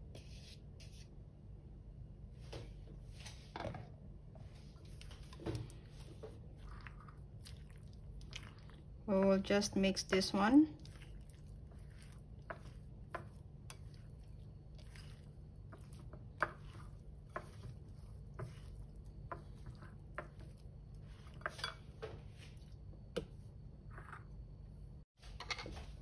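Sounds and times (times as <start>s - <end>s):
wet mixing of food: 4.4s - 23.6s
chopsticks tapping a bowl: 12.1s - 14.1s.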